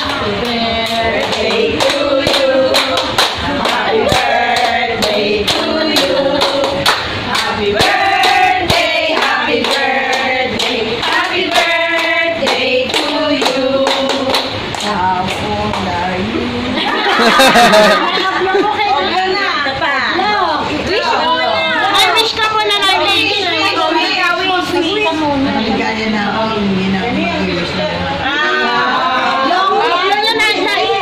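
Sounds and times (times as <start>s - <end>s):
group of people singing: 0.0s - 18.2s, 28.2s - 31.0s
hands clapping: 1.2s - 15.8s.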